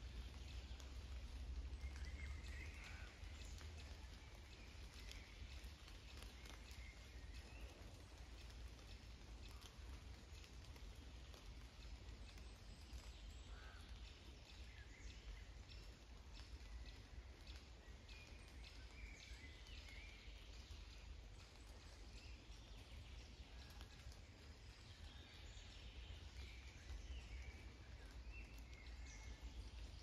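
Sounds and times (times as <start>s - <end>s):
raindrops ticking: 0.0s - 30.0s.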